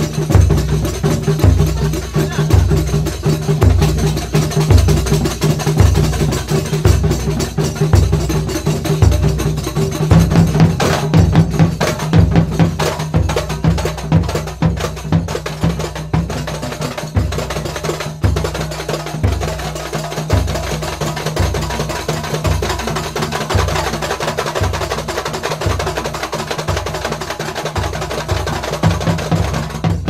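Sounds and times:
deep barrel drum booms: 0.0s - 17.6s.

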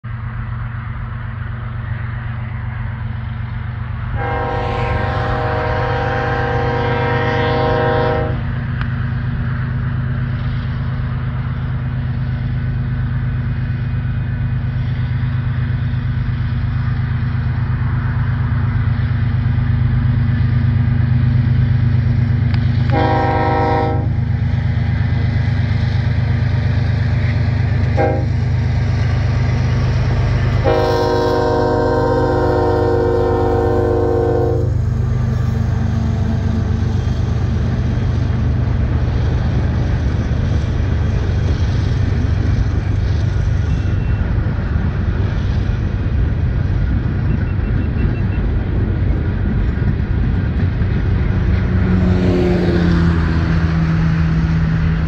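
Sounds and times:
train low rumble: 0.0s - 55.0s
locomotive air horn blasts: 4.2s - 8.5s, 22.9s - 24.2s, 27.9s - 28.4s, 30.6s - 35.4s.

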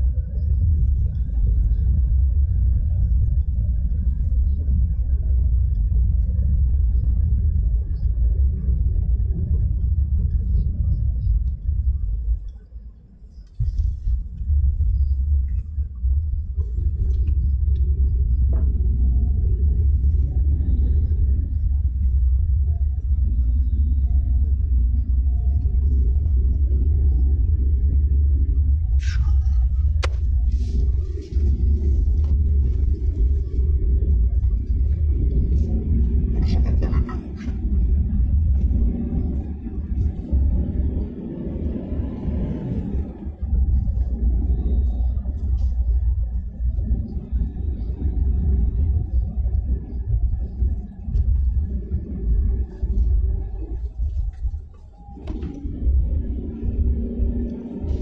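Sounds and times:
road noise: 55.1s - 58.0s.

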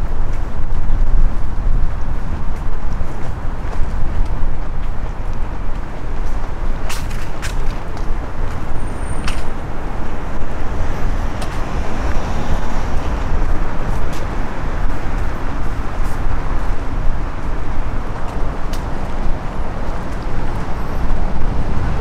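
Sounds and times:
cars passing close by: 7.9s - 22.0s.

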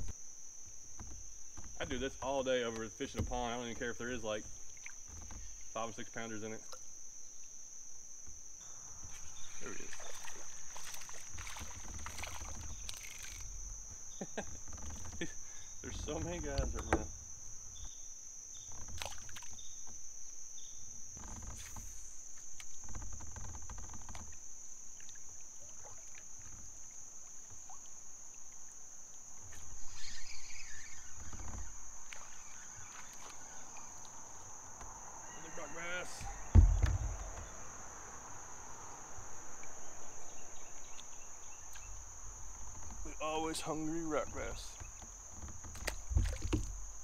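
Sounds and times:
insects buzzing: 0.0s - 47.0s
plastic kayak knocks and thumps: 16.0s - 17.9s, 36.2s - 37.7s, 44.8s - 47.0s.

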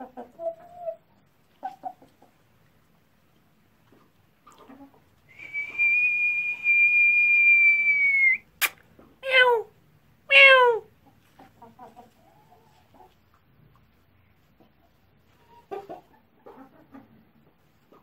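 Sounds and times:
sharp click: 8.6s - 8.8s.

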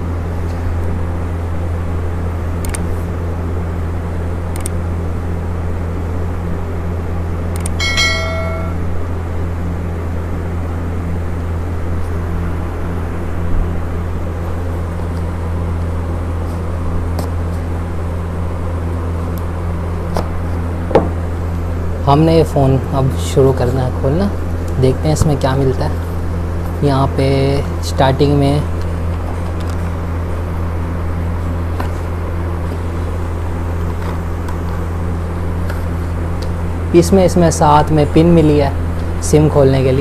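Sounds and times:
steady low hum: 0.0s - 40.0s
short high ringing tone: 7.8s - 9.0s.

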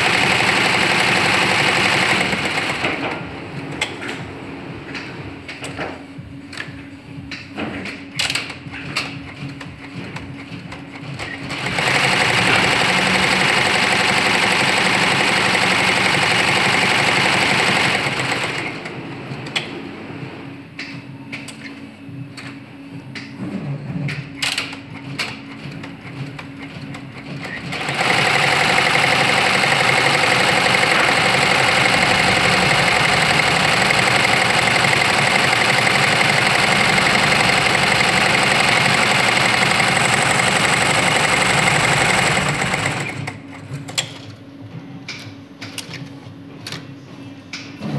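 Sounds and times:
embroidery machine stitching: 0.0s - 3.2s, 9.8s - 19.1s, 24.5s - 43.5s
machine clicks: 7.3s - 18.7s, 24.2s - 44.4s.

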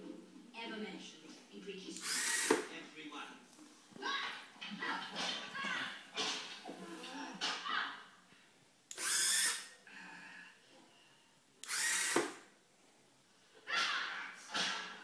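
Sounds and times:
small motor whirring: 2.0s - 2.7s, 8.9s - 9.7s, 11.6s - 12.4s.

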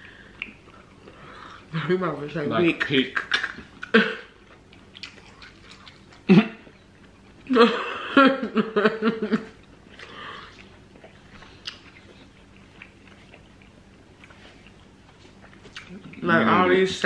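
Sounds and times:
chewing clicks and smacks: 3.4s - 7.4s, 9.7s - 16.2s.

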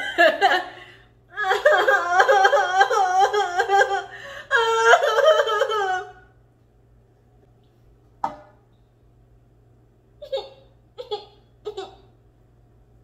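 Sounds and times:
woman moaning and whimpering: 1.3s - 6.3s.

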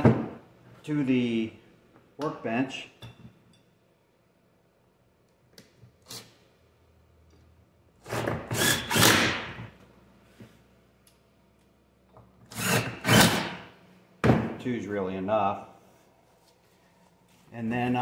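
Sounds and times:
cordless drill driving screws: 8.5s - 9.3s, 12.5s - 13.6s.

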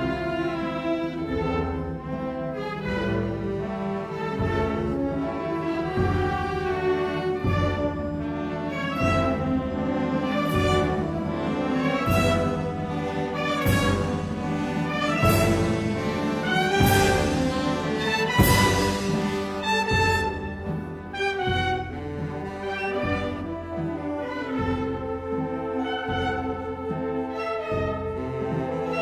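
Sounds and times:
brass playing held notes: 10.2s - 26.6s.

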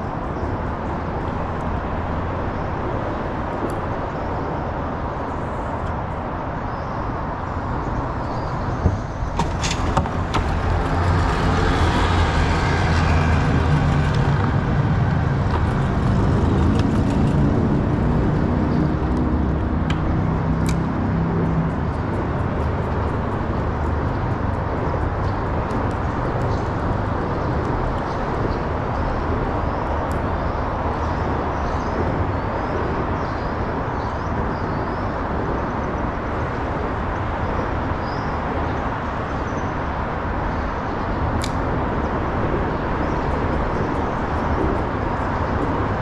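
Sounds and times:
traffic rumbling on bridge: 0.0s - 46.0s
heavy vehicle passing: 8.7s - 28.9s
sharp clicks and knocks: 8.8s - 12.2s.

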